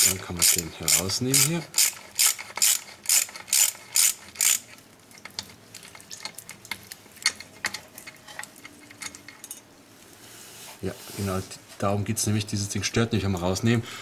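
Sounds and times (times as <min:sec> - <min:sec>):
ratchet wrench clicking: 0:00.1 - 0:04.8.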